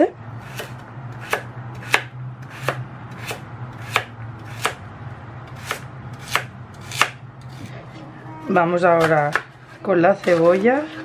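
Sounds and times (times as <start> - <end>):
knife chopping on cutting board: 0.4 - 4.8, 5.5 - 7.6.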